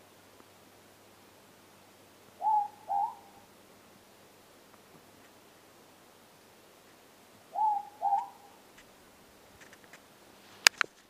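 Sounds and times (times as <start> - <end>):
owl hooting two-note call: 2.4 - 3.5, 7.5 - 8.6.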